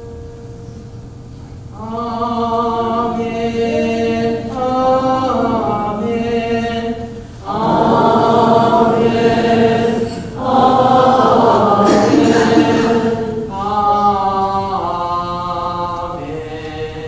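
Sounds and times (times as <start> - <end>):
many voices singing together: 1.8 - 17.0
man chanting long notes: 7.4 - 17.0.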